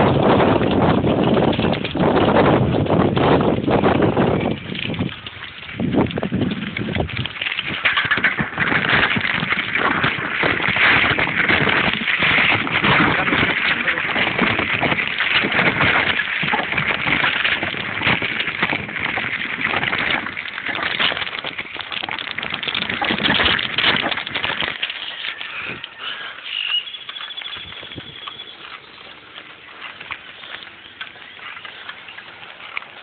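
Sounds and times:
bike rattling over gravel: 0.0s - 33.0s
wind buffeting: 0.0s - 33.0s
high whistle-like tone: 25.2s - 29.0s.

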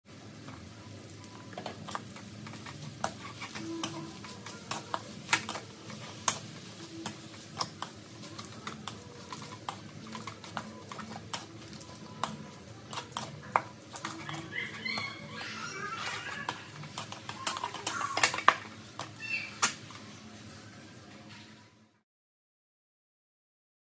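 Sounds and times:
spatula scraping a wok: 1.5s - 19.2s.

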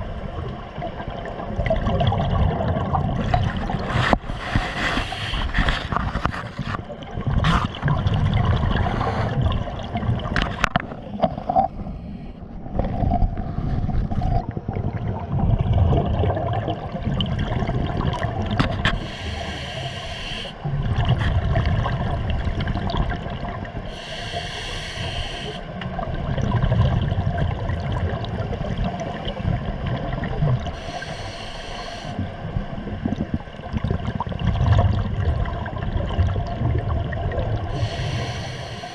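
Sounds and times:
rumble of exhaled bubbles: 0.0s - 19.9s, 20.6s - 24.0s, 25.6s - 31.1s, 32.1s - 38.9s
regulator hiss on inhalation: 18.9s - 20.6s, 23.9s - 25.7s, 30.8s - 32.2s, 37.7s - 38.9s.

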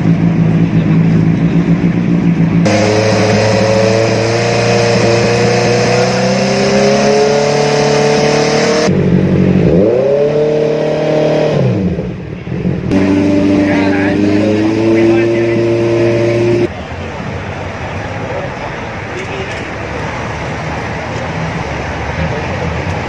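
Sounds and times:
motorcycle engine revving: 0.0s - 16.7s.

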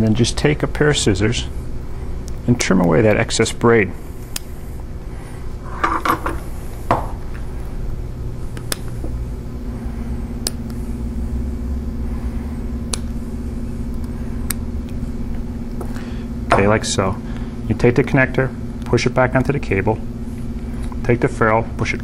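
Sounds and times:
steady hum: 0.0s - 22.0s
steady low rumble: 6.4s - 22.0s
scissors snipping: 12.9s - 13.1s.

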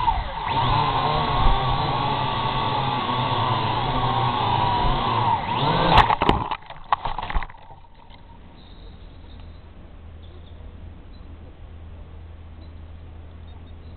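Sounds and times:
drone motors whining: 0.0s - 9.5s.

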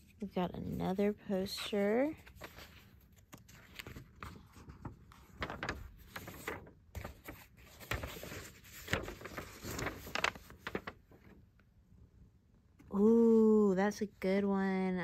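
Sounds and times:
paper rustling and crinkling: 0.0s - 11.5s.

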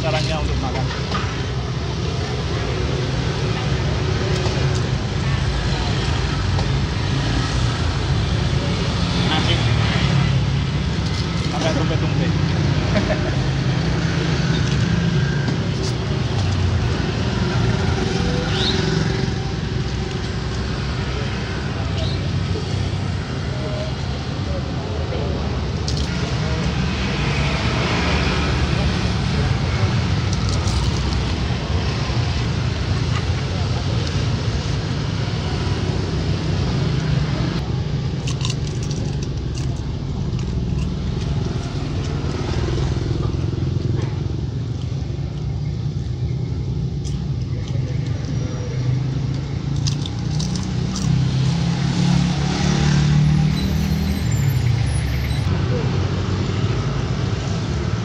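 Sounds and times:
vehicles passing on road: 0.0s - 58.0s
small clicks and crackles: 49.3s - 51.4s.

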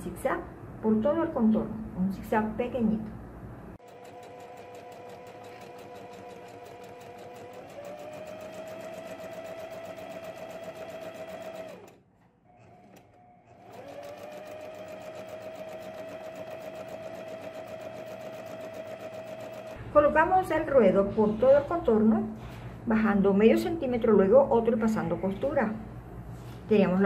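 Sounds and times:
sewing machine stitching: 3.8s - 19.8s.

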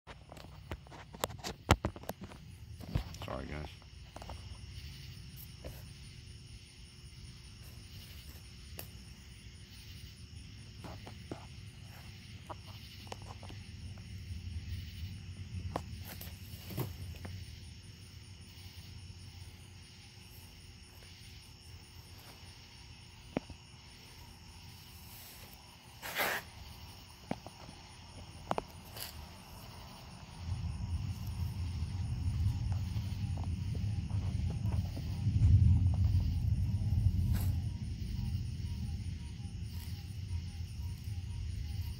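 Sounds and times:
insects chirping: 0.1s - 41.9s
rustling: 28.6s - 29.8s
distant thunder rumbling: 30.1s - 41.9s.

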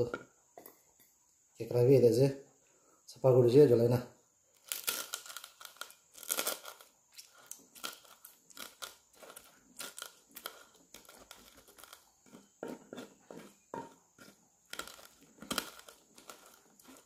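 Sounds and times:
pestle crunching in wooden mortar: 4.5s - 17.0s.

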